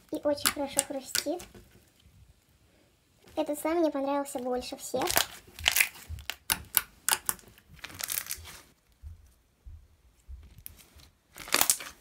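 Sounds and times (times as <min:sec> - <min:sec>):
slime clicking and crackling: 0:00.0 - 0:01.8, 0:04.3 - 0:08.6, 0:10.6 - 0:12.0.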